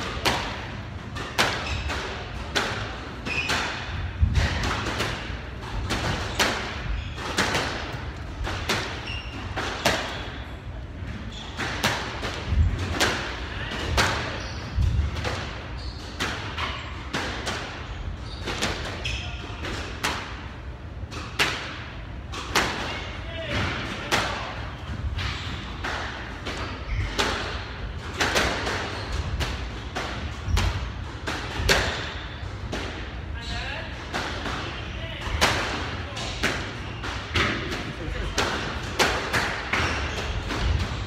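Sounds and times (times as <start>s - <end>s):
short high squeaks: 8.9s - 10.2s.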